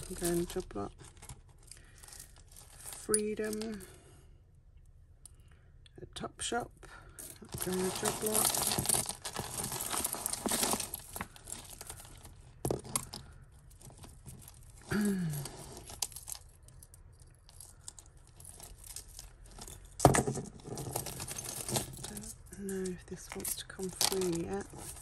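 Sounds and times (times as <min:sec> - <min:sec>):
jewellery chains jangling: 0:00.0 - 0:03.9, 0:07.2 - 0:25.0.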